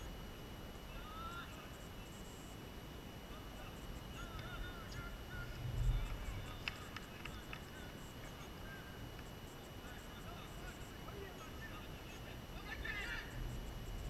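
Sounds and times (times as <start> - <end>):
low wind rumble: 5.1 - 7.1.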